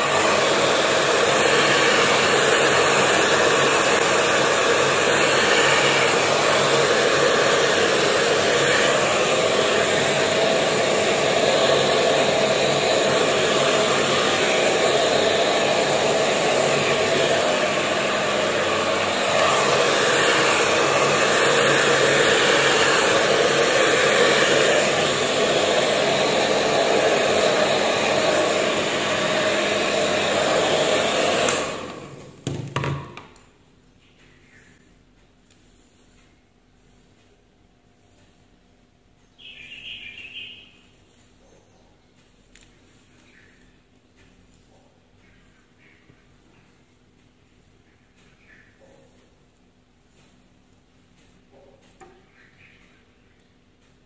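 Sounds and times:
hair dryer blowing: 0.0s - 33.3s.

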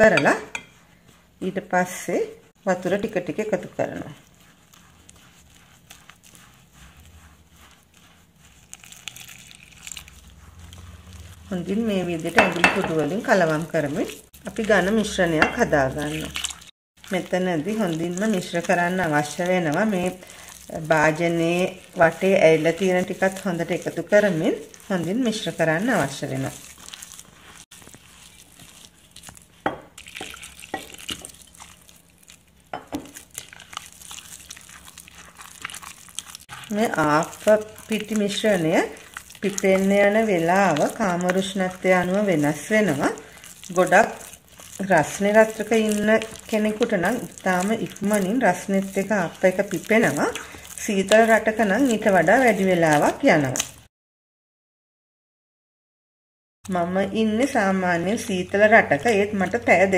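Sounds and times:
hand squishing dough in bowl: 0.0s - 53.9s, 56.7s - 59.9s.

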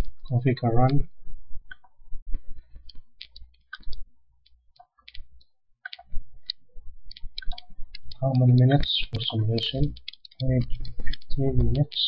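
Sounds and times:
mouse and keyboard clicks: 2.8s - 12.0s.

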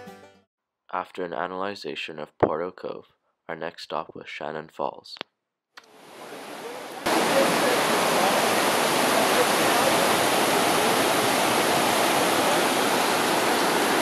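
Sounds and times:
creek rushing over rocks: 6.0s - 14.0s.

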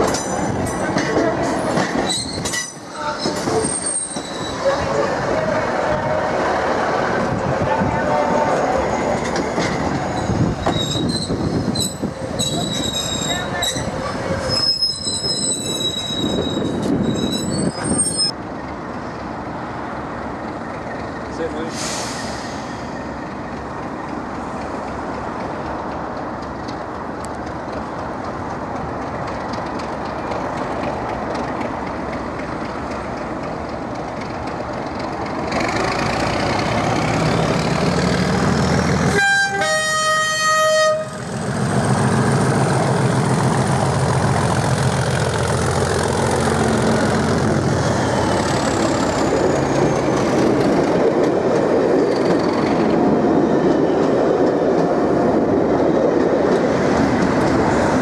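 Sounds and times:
diesel locomotive engine: 0.0s - 58.0s
locomotive two-tone horn: 39.0s - 41.2s.

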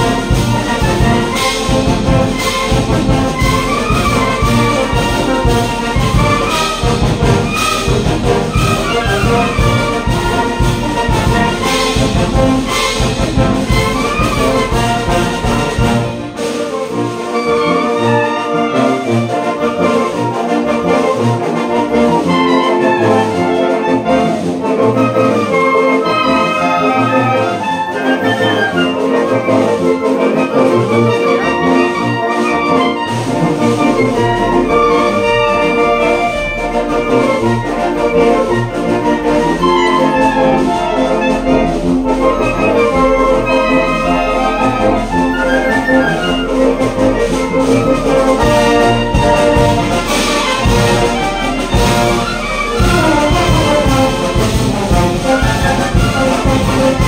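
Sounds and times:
wind band playing: 0.0s - 57.0s.

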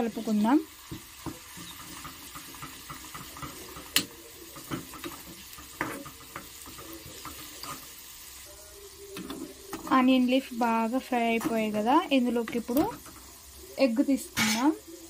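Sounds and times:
faint sizzle in a pan: 0.0s - 15.0s
spoon scraping and tapping pan: 0.8s - 8.0s, 9.1s - 10.3s, 11.2s - 13.4s, 14.4s - 14.8s.

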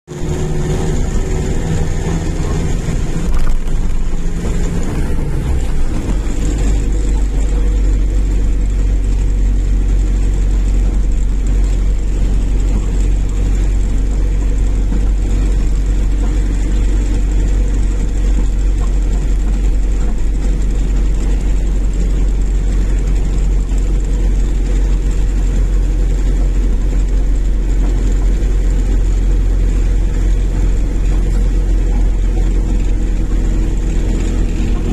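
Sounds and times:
engine and tyre rumble: 0.0s - 34.9s
engine tone shifting pitch: 0.1s - 10.6s, 30.6s - 34.9s.

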